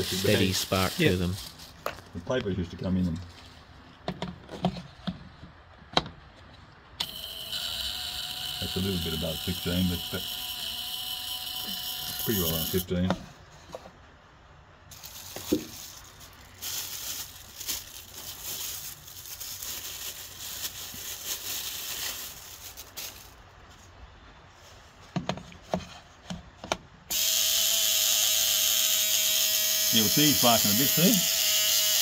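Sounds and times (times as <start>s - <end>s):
coil buzzing loudly: 7.0s - 12.9s, 27.1s - 32.0s.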